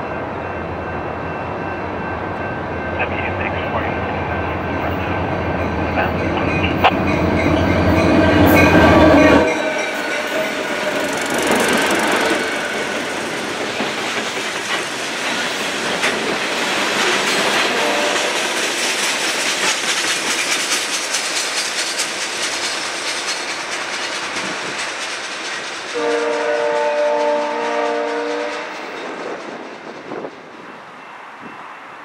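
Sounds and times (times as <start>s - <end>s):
freight train rumble: 0.0s - 32.0s
train wheels clacking over rail joints: 6.8s - 30.3s
train air horn chord: 17.7s - 18.3s, 26.0s - 28.8s.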